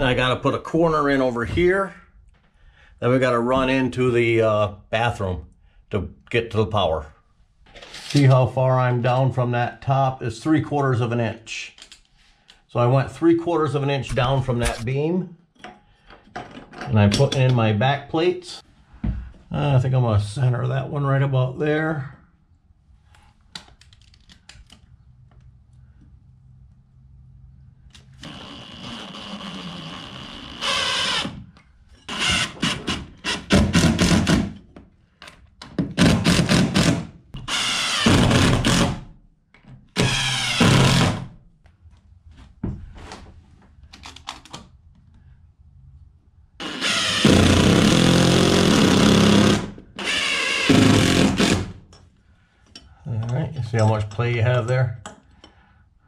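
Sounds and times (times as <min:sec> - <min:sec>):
cordless drill driving screws: 0:28.2 - 0:31.4, 0:36.0 - 0:39.0, 0:40.0 - 0:41.2, 0:46.6 - 0:51.8.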